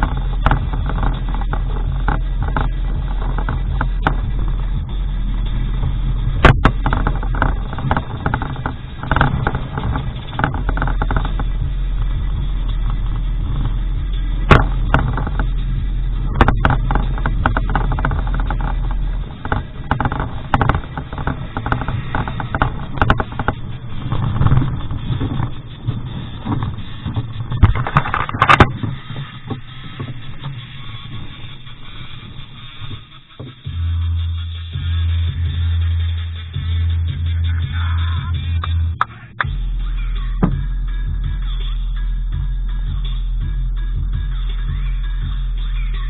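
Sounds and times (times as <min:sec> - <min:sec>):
truck knocking and rattling: 0:00.0 - 0:33.8, 0:40.3 - 0:41.7
truck engine running: 0:00.0 - 0:46.0.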